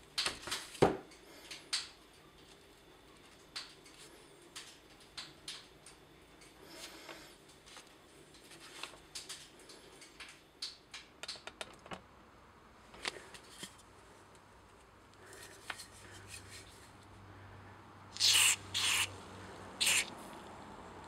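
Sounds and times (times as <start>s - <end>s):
aerosol can hissing: 18.2s - 19.1s, 19.8s - 20.1s.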